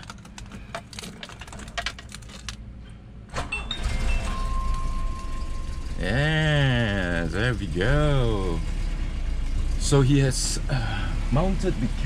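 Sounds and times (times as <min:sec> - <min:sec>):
keys jingling in ignition: 0:00.0 - 0:02.6
car engine starting and idling: 0:00.0 - 0:12.0.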